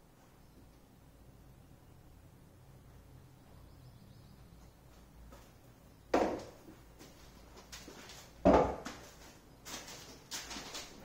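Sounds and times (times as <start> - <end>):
solid thumps: 6.1 - 6.6, 8.4 - 9.1.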